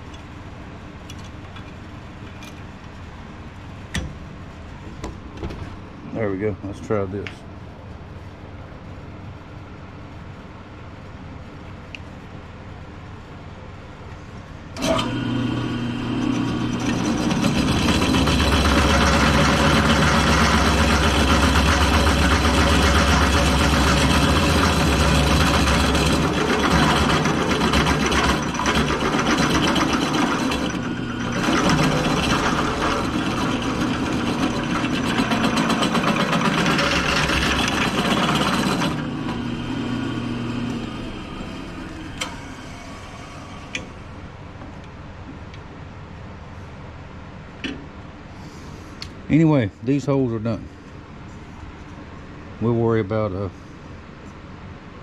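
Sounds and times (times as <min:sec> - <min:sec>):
drill press boring into metal: 0:14.8 - 0:43.9.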